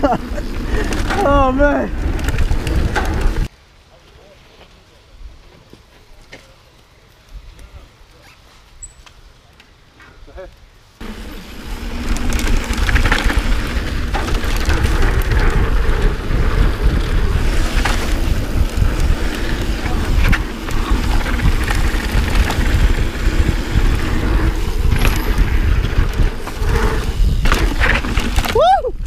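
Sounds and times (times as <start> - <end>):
bike rattling over bumps: 0.0 - 3.5, 11.0 - 29.0
tyres rumbling on dirt: 0.0 - 3.5, 11.0 - 28.7
wind buffeting microphone: 0.0 - 3.5, 11.6 - 29.0.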